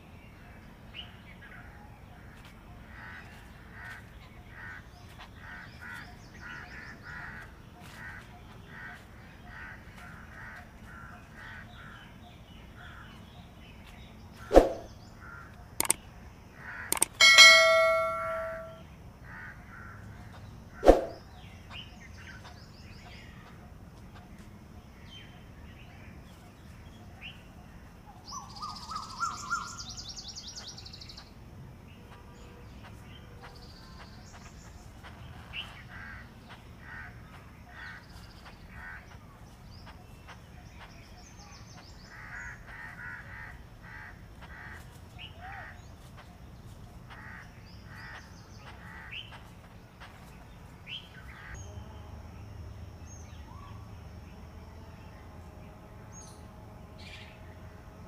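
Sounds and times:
koel calling: 16.8 - 18.8.

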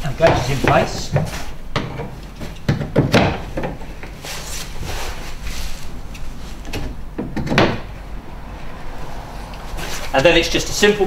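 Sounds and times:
handling knocks and scrapes: 0.0 - 7.8, 9.7 - 10.2.

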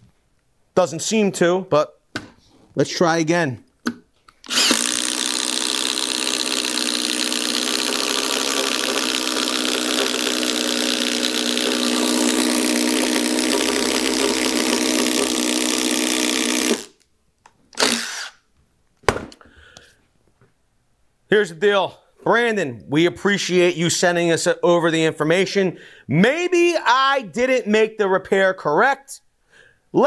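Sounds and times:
impact driver boring into wood: 4.4 - 17.0, 17.8 - 18.4.

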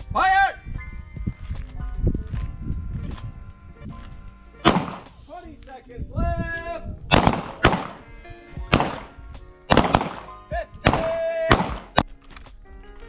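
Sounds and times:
background music: 0.0 - 13.0
handgun shots: 4.6 - 5.2, 7.1 - 8.0, 8.7 - 12.1.

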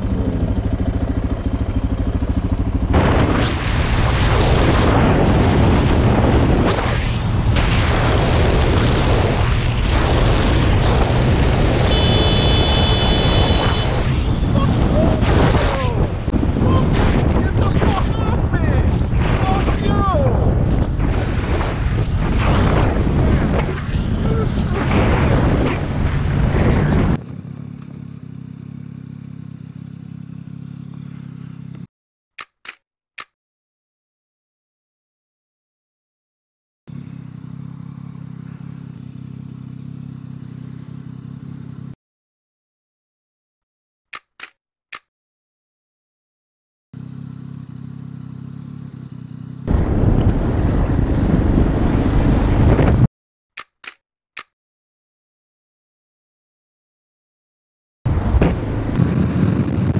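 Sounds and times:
motorcycle engine idling: 0.0 - 2.9, 27.2 - 31.9, 36.9 - 41.9, 47.0 - 49.6
wind rushing over microphone: 3.0 - 27.2, 49.7 - 53.1, 58.1 - 59.9
short clicks: 32.4 - 33.4, 44.1 - 45.1, 53.6 - 54.6.

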